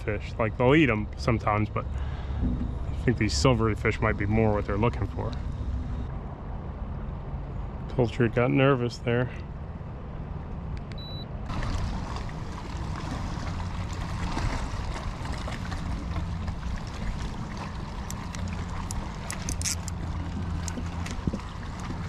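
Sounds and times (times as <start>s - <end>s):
water sloshing against hull: 0.6s - 6.1s, 11.5s - 22.0s.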